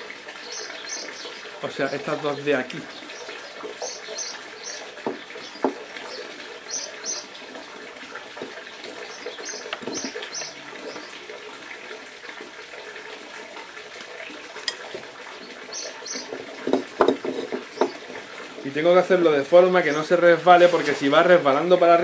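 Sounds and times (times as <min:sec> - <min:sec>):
handling clicks and knocks: 0:16.2 - 0:18.0.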